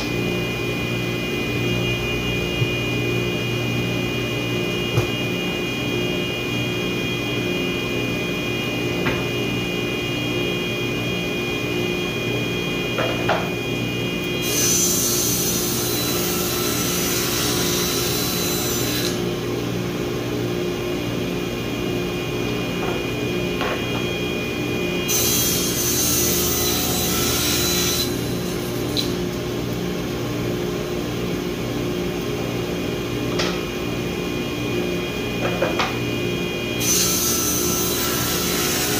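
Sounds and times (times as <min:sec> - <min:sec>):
table saw motor hum: 0:00.0 - 0:19.4, 0:21.2 - 0:29.2, 0:33.4 - 0:38.9
saw cutting wooden board: 0:14.4 - 0:19.2, 0:25.0 - 0:29.1, 0:36.8 - 0:38.9.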